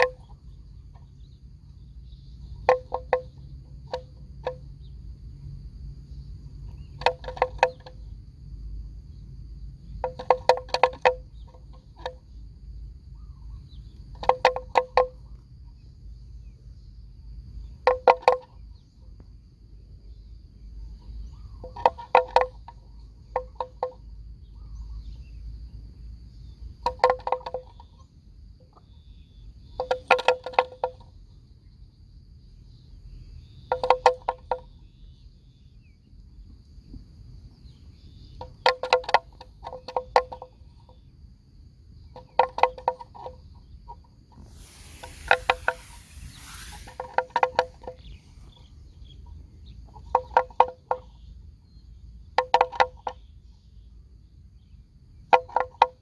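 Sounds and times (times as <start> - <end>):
low wind rumble: 43.5 - 49.9
thin high whine: 44.3 - 48.6.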